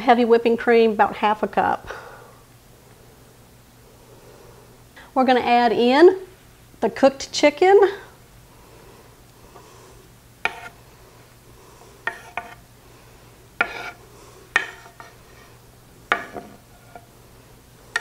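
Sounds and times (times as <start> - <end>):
knife scraping cutting board: 10.4 - 10.8, 12.0 - 12.6, 13.6 - 17.1.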